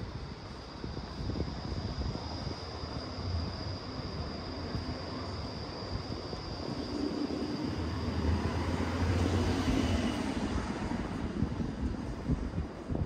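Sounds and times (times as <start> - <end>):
vehicle engine rumble passing by: 6.8 - 12.5.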